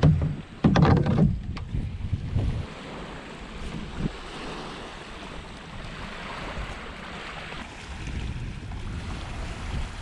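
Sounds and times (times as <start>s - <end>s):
wind on microphone: 0.0s - 10.0s
waves washing on pebble beach: 4.2s - 10.0s.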